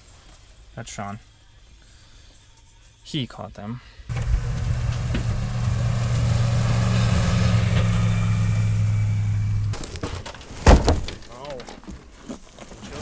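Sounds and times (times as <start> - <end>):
vehicle engine humming: 4.1 - 9.8.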